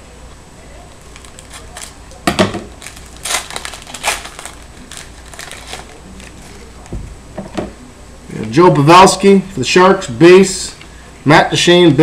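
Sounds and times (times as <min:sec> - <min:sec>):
card pack wrapper crinkling: 0:00.9 - 0:02.0, 0:02.7 - 0:06.9.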